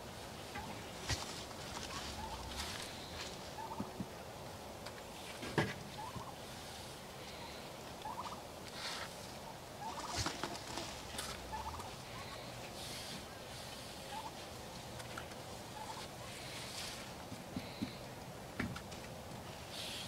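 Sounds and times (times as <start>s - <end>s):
turkeys gobbling: 0.4s - 4.1s, 5.9s - 6.6s, 7.3s - 16.8s.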